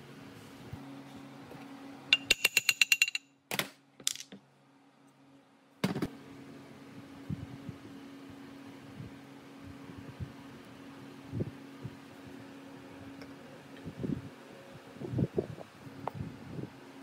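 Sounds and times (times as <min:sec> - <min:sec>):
steady low hum: 0:04.4 - 0:17.0.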